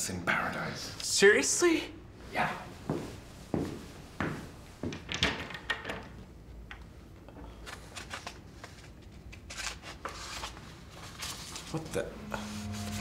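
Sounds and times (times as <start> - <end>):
paper pages rustling: 7.5 - 13.0.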